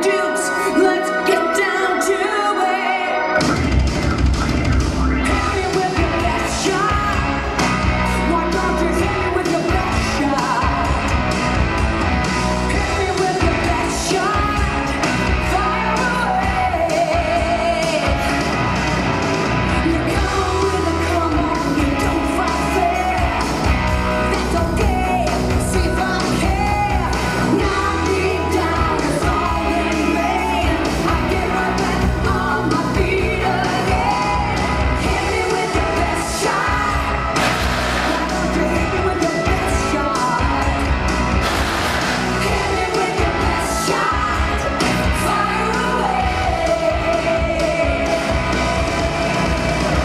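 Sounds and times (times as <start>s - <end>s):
loud rock music with singing: 0.0s - 50.0s.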